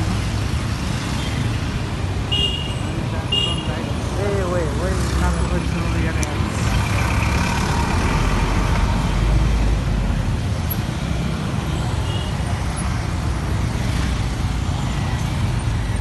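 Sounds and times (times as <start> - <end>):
busy street traffic: 0.0 - 16.0.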